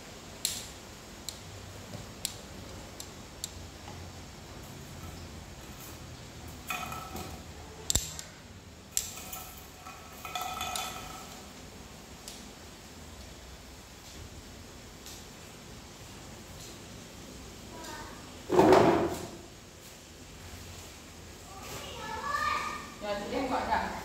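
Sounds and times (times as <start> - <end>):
objects clattering and clinking: 6.6 - 7.6, 9.0 - 11.5.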